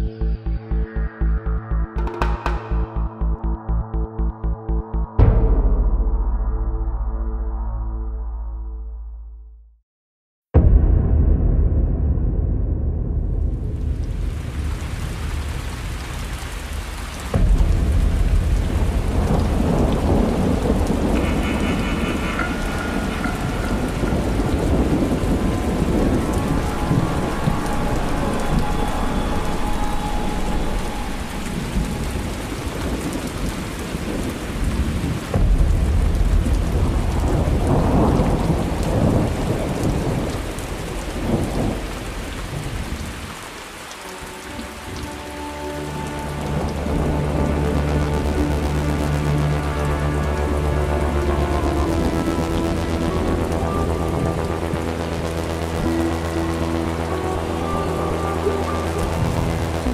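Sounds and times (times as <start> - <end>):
loud thunder clap: 10.6 - 16.3, 17.3 - 29.2, 31.1 - 43.2
thunder rumbling: 10.6 - 59.9
heavy rain: 10.7 - 59.9.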